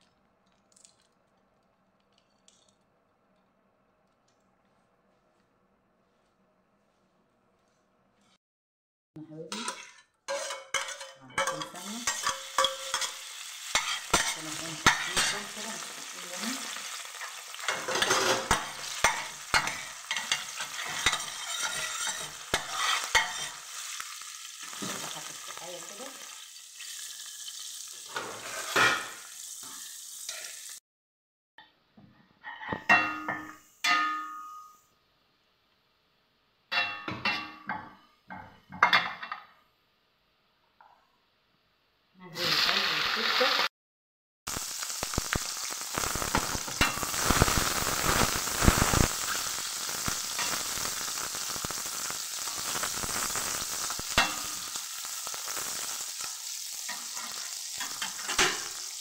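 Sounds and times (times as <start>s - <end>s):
spoon scraping metal pan: 9.5s - 15.9s, 16.6s - 25.0s, 28.1s - 30.7s, 56.8s - 58.8s
food sizzling in hot oil: 9.6s - 30.8s, 42.3s - 43.7s, 44.5s - 59.0s.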